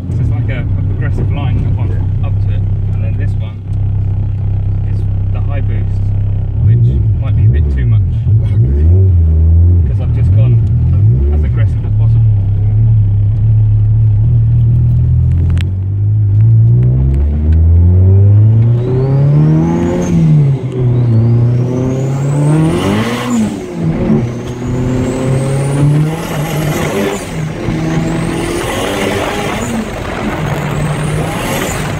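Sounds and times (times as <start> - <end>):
car engine revving through gears: 6.5 - 31.9.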